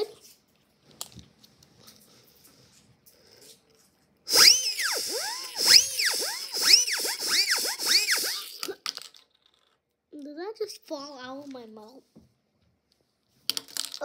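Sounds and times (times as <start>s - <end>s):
toy whistle rising and falling: 4.3s - 8.8s.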